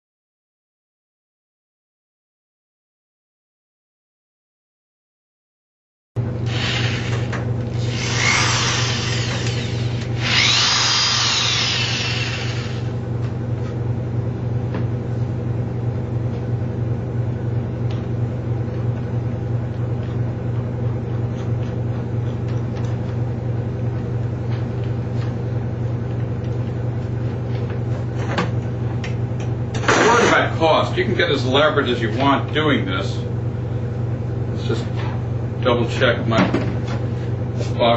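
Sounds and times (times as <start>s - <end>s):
power drill whine: 6.4s - 13.0s.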